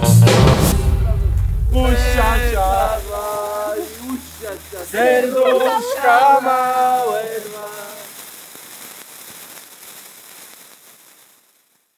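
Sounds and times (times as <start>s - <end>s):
person singing: 0.0s - 8.1s
sparklers fizzing and crackling: 0.5s - 11.9s.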